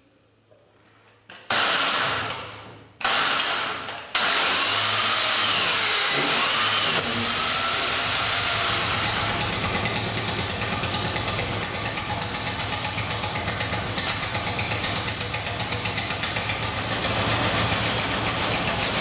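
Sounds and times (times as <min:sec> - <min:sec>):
motorcycle engine starting: 0:04.7 - 0:19.0.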